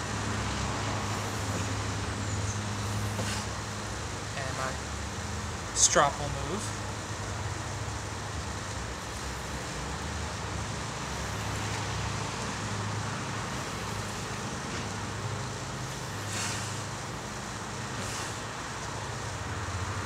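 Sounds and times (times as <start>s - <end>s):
knife swishing across leather strop: 3.0s - 3.6s.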